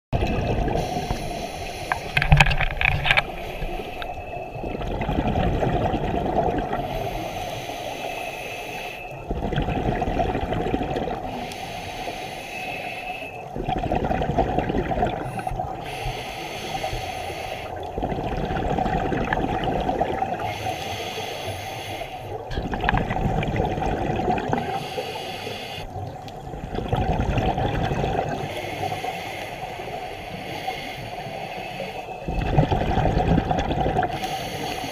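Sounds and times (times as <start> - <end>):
exhaled bubbles rushing: 0.2 - 1.2, 2.1 - 6.9, 9.2 - 11.3, 13.5 - 15.8, 17.8 - 20.5, 22.5 - 24.8, 26.4 - 28.5, 32.2 - 34.2
regulator inhalations: 0.8 - 2.4, 3.1 - 4.3, 6.9 - 9.2, 11.3 - 13.5, 15.8 - 17.8, 20.4 - 22.4, 24.6 - 25.9, 28.4 - 32.3, 34.1 - 34.9.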